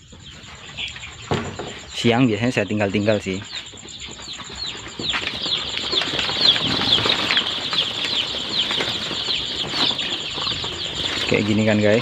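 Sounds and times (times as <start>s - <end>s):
chicks peeping: 0.0s - 12.0s
plastic cover rustling: 4.8s - 12.0s.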